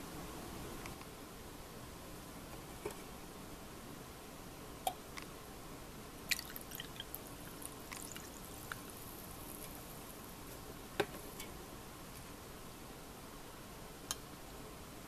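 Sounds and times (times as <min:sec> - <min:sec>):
glass and ice clinking: 0:06.3 - 0:07.2
drink trickling into a glass: 0:06.3 - 0:09.6.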